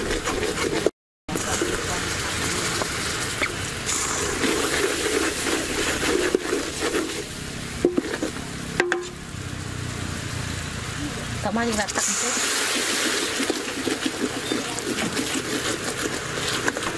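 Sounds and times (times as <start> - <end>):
sauce bubbling and sizzling: 0.0 - 16.9
liquid being poured: 1.3 - 7.4, 12.0 - 16.9
ladle stirring: 4.2 - 8.4, 12.3 - 16.9.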